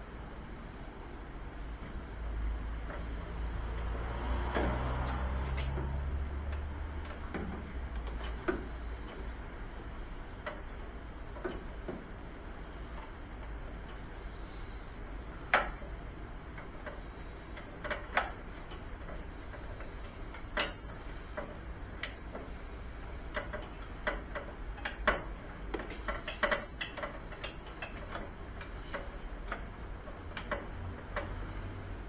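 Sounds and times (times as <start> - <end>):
ratchet wrench clicking: 19.6 - 20.8, 26.0 - 29.6.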